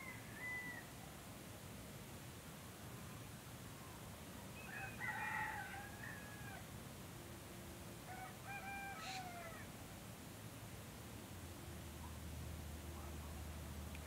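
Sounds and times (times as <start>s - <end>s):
rooster crowing: 4.6s - 6.7s, 8.0s - 9.7s.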